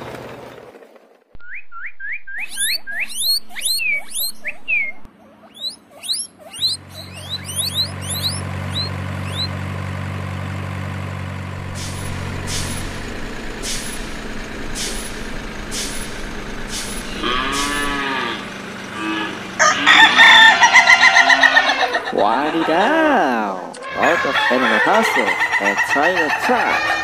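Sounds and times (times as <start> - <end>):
truck engine hum: 0.0 - 27.0
drawn-out animal call: 5.0 - 27.0
short hissing clicks: 14.7 - 17.7
chicken clucking: 19.4 - 27.0.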